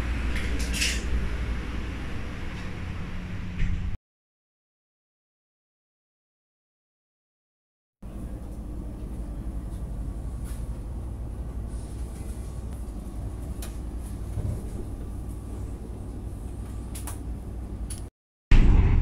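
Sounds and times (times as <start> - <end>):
train running rumble: 0.0 - 4.0, 8.1 - 19.0.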